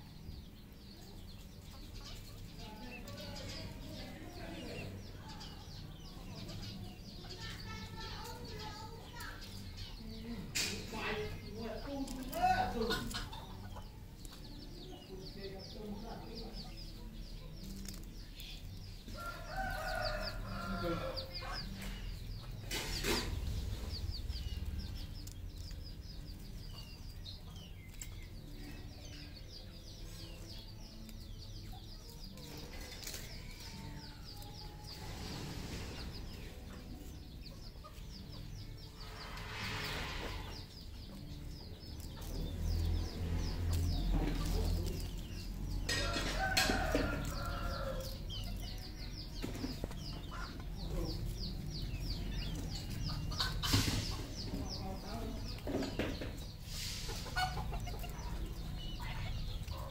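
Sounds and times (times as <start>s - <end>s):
junglefowl clucking and crowing: 45.9s - 48.2s.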